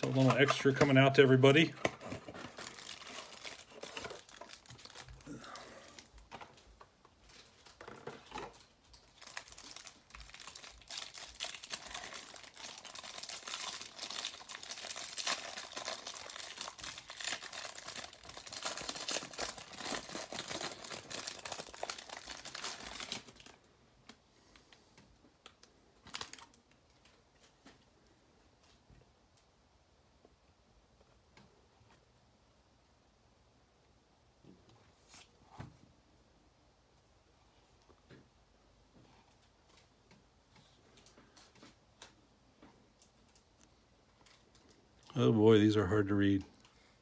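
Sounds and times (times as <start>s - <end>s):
plastic wrapper crinkling: 0.0s - 24.7s, 25.4s - 27.6s, 42.9s - 45.2s.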